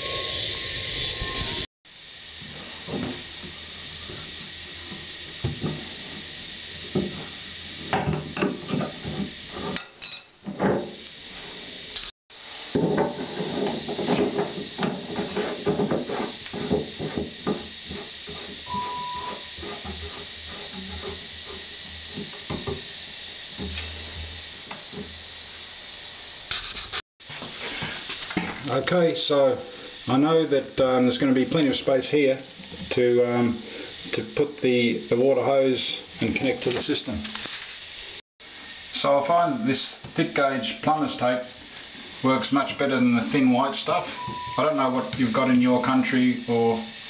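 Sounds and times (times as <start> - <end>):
steady hiss: 0.0 - 47.0.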